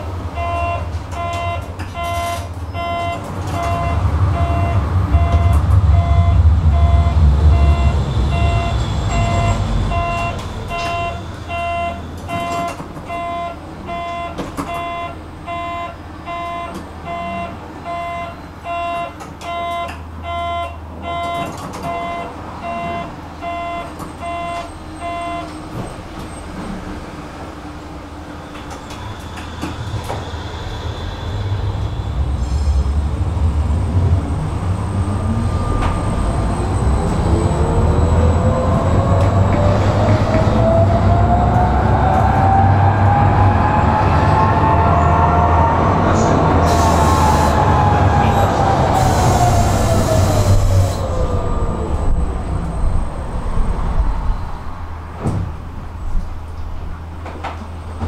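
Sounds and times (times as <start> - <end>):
tram motor whine: 0.0 - 58.0
wheels rumbling on rails: 0.0 - 58.0
tram door warning beeps: 0.3 - 26.6.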